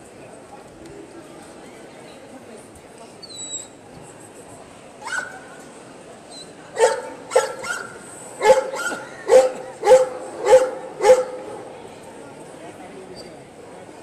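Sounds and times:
dog barking: 6.8s - 11.5s.

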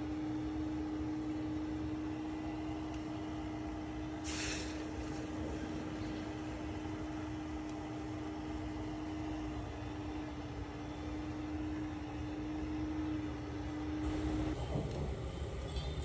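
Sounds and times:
mechanical hum: 0.0s - 16.0s
short hiss: 4.2s - 5.3s.

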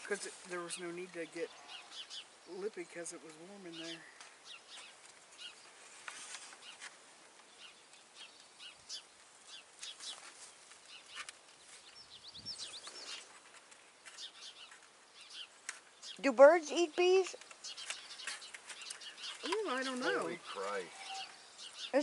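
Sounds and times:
faint bird chirping: 0.0s - 22.0s
whistled bird notes: 17.2s - 22.0s.

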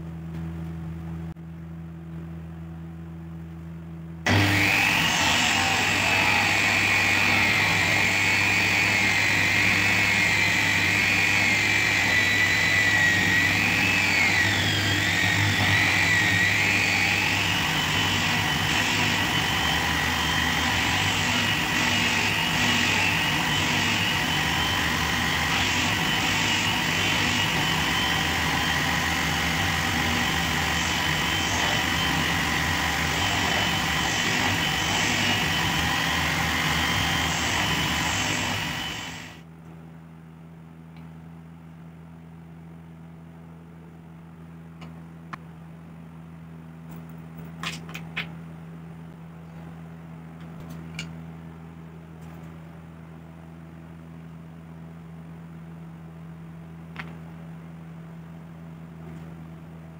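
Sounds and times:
disc sander whining: 4.3s - 39.4s.

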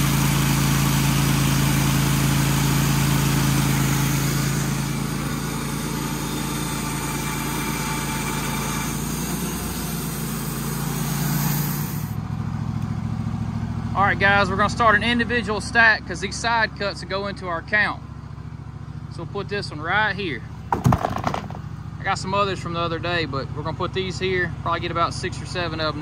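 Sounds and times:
sawmill engine running: 0.0s - 26.0s
band blade cutting log: 2.1s - 12.2s.

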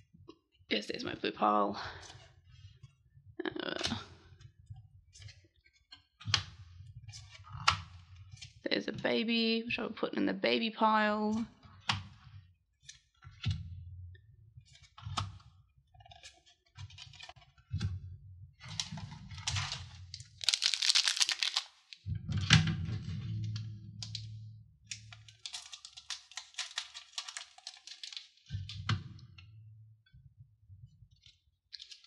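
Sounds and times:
foil pack crinkling: 18.8s - 22.0s, 25.1s - 28.4s
trading cards clicking: 20.4s - 21.7s.

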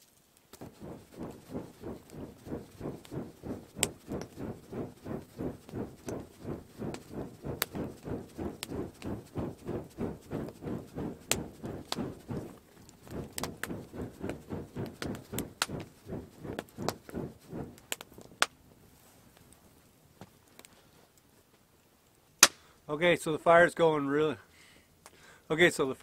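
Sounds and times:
campfire crackling and popping: 0.4s - 18.5s
rhythmic low whooshing: 0.6s - 17.8s.

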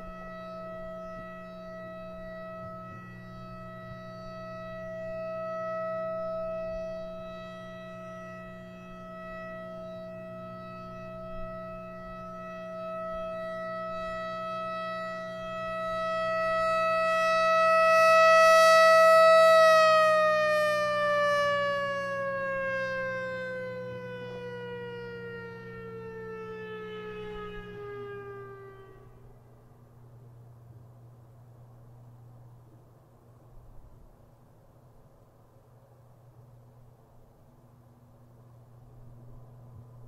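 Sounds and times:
warning siren wailing: 0.0s - 30.3s
low hum: 0.0s - 40.0s.

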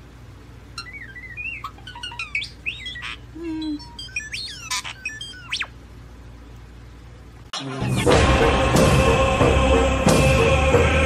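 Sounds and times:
low steady hum: 0.0s - 11.0s
starling singing: 0.7s - 5.8s.

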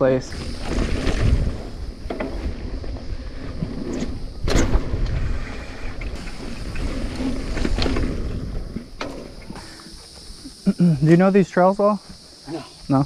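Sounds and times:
bike tyre rumble: 0.0s - 11.2s
wind buffeting microphone: 0.2s - 9.6s.

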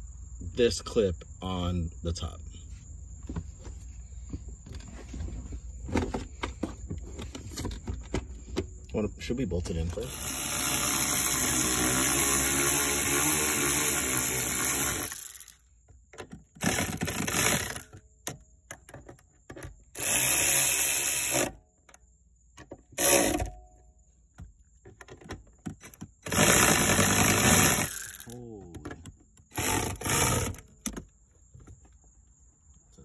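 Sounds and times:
cordless ratchet running: 10.0s - 15.6s, 16.6s - 17.9s, 20.0s - 21.6s, 26.2s - 28.4s, 29.5s - 30.6s.

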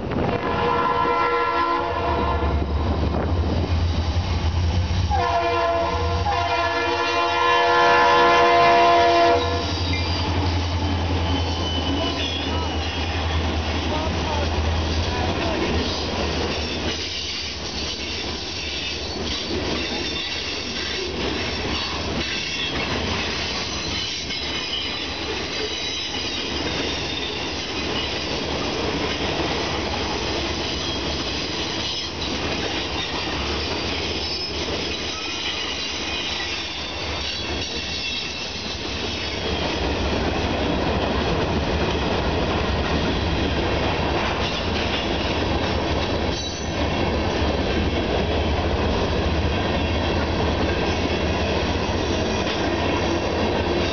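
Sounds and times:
train wheels rumbling on rail: 0.0s - 53.9s
high wheel squeal: 9.4s - 13.4s, 33.5s - 38.6s.

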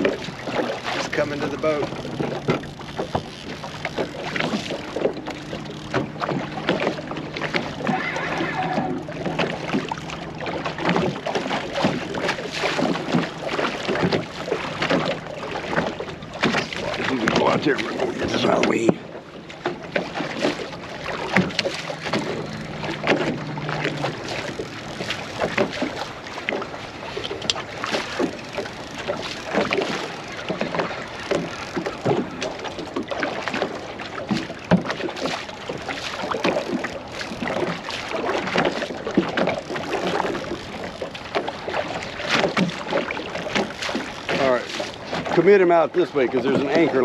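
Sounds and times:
knocks and splashes: 0.0s - 47.0s
waves slapping boat hull: 0.0s - 47.0s
low steady hum: 20.8s - 32.6s.

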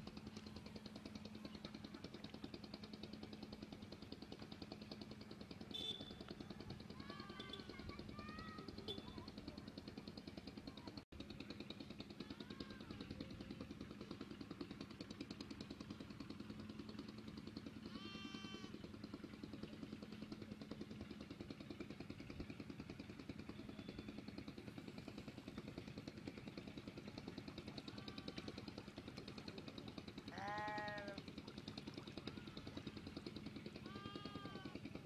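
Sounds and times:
animal call: 30.3s - 31.2s, 33.8s - 34.8s.

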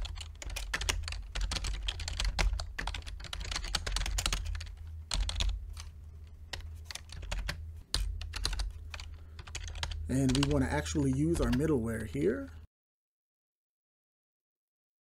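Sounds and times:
typing on computer keyboard: 0.0s - 5.9s, 6.5s - 12.6s
low steady hum: 0.0s - 12.7s.

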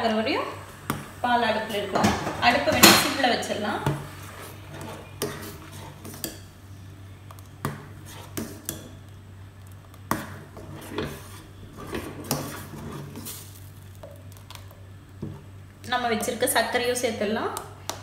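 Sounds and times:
ladle scraping steel saucepan: 1.7s - 6.4s.

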